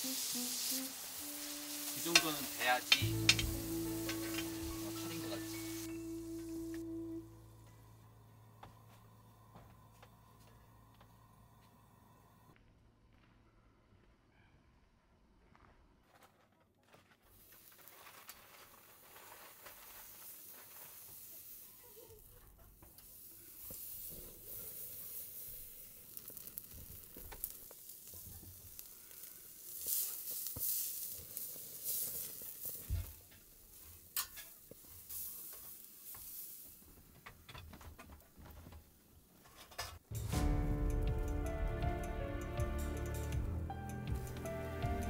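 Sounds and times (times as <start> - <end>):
steak sizzling on a grill: 0.0 - 6.7, 17.7 - 37.1.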